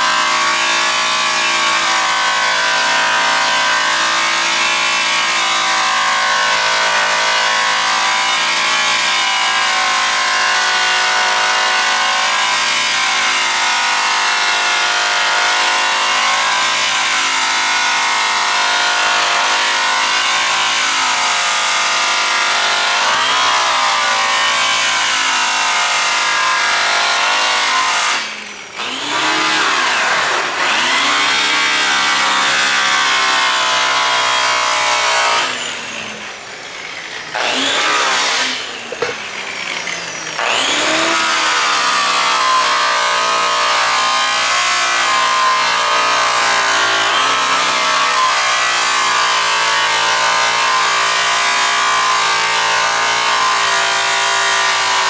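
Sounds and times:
rotary polisher motor whining: 22.8 - 54.9.

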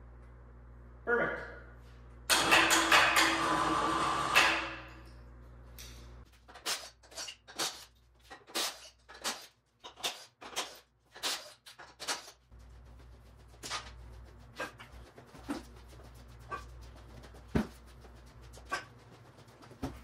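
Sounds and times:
electric crane hoist running: 2.3 - 5.0.

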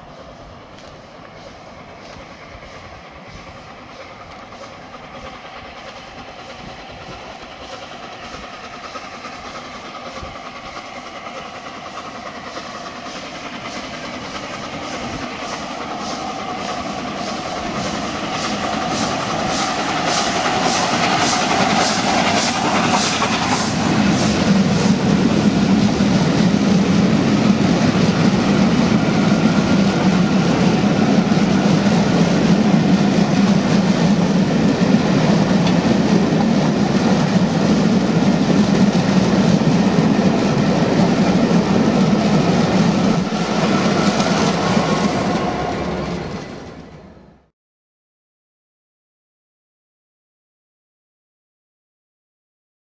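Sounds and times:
train wheels clickety-clack: 0.0 - 47.2
steam locomotive passing: 0.0 - 47.5.

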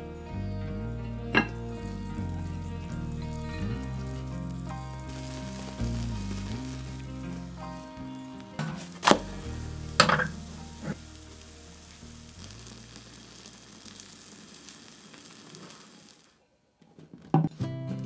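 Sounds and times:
omelette sizzling in a pan: 1.6 - 8.2, 8.8 - 16.4.

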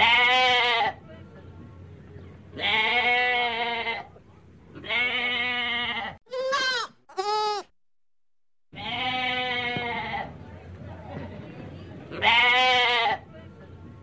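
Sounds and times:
goat kids bleating: 0.0 - 1.0, 2.6 - 4.1, 4.8 - 7.7, 8.8 - 10.3, 12.1 - 13.2.

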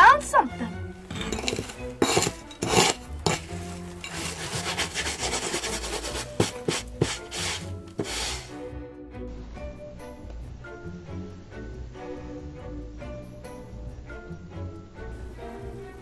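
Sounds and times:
trowel scraping through dry sand: 1.1 - 8.6.

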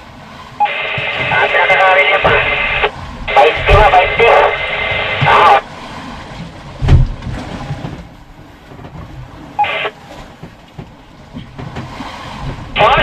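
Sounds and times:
low background rumble: 0.0 - 13.0
two-way radio chatter: 0.6 - 5.6, 9.6 - 10.0, 12.8 - 13.0.

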